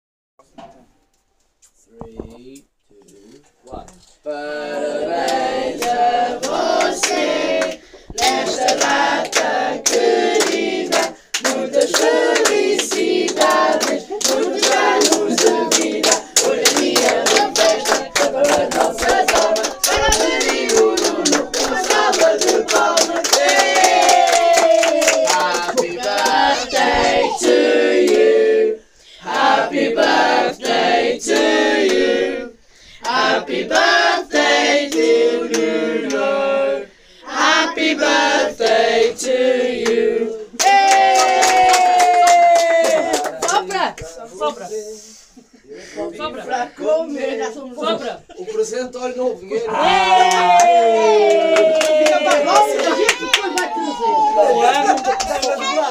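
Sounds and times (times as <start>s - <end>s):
group singing birthday song: 3.2s - 55.9s
people clapping in time: 5.2s - 27.0s, 40.6s - 44.1s, 50.1s - 55.9s.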